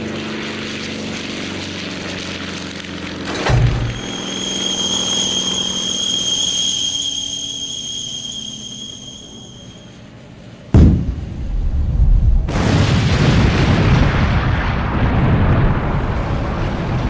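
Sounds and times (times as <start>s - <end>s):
propeller plane drone: 0.0s - 12.6s, 14.8s - 17.0s
steady high whistle: 3.8s - 10.2s
firecracker explosion: 10.7s - 17.0s.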